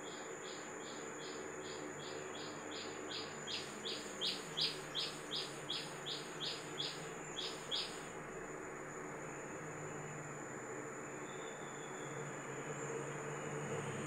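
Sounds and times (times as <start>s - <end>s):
bird chirping rapidly: 0.9s - 8.0s.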